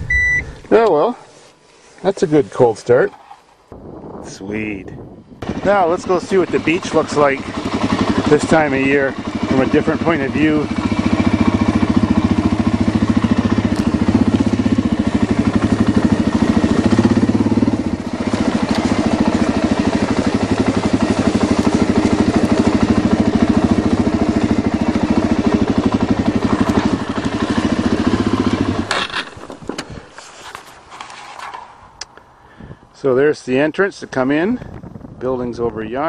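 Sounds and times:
vehicle engine running: 0:05.4 - 0:29.8.

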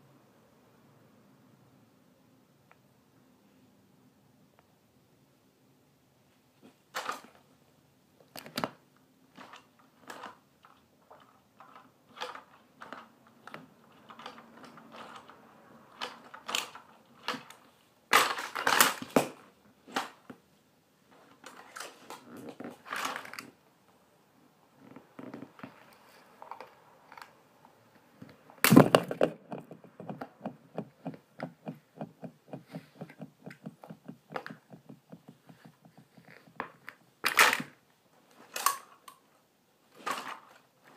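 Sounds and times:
plastic toys knocking and cracking: 0:07.0 - 0:07.4, 0:08.2 - 0:20.4, 0:21.4 - 0:23.6, 0:28.2 - 0:37.8
plastic crunching: 0:08.4 - 0:20.2.

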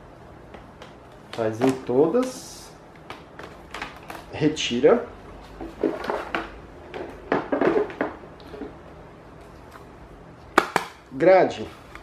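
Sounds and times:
hard plastic clattering: 0:05.6 - 0:08.8.

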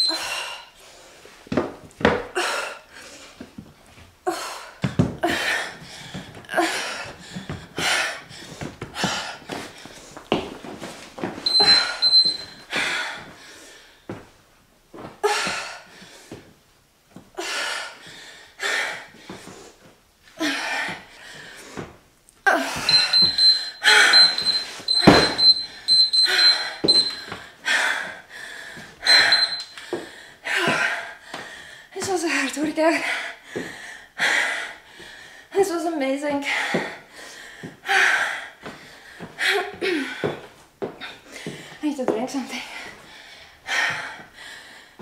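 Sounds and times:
interval timer beeping: 0:00.0 - 0:00.3, 0:11.4 - 0:12.7, 0:22.9 - 0:27.4, 0:29.1 - 0:29.8
hard forceful breathing: 0:20.4 - 0:31.9.

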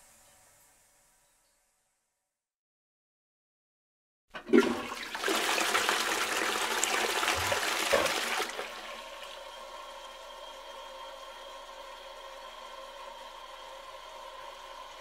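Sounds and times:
toilet flushing: 0:04.4 - 0:15.0
faint steady whine: 0:08.7 - 0:15.0.

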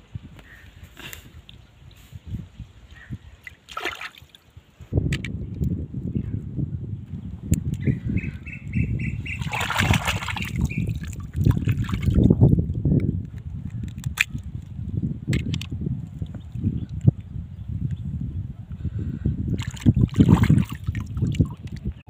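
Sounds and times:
river water splashing: 0:03.4 - 0:04.5, 0:09.3 - 0:12.1.

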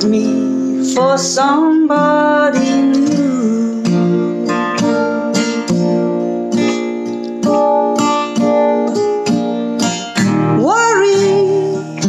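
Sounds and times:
person singing: 0:00.0 - 0:05.6, 0:09.8 - 0:12.0
acoustic guitar strummed slowly: 0:00.0 - 0:12.0.

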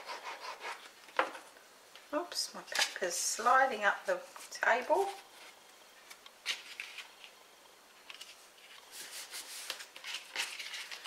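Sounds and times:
cardstock rustling and scraping: 0:04.3 - 0:07.4, 0:08.0 - 0:11.0.

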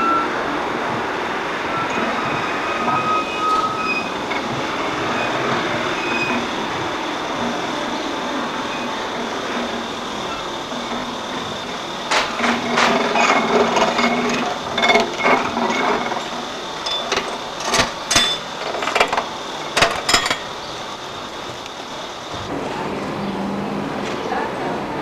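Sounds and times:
crank mechanism clicking and rattling: 0:12.1 - 0:20.5.

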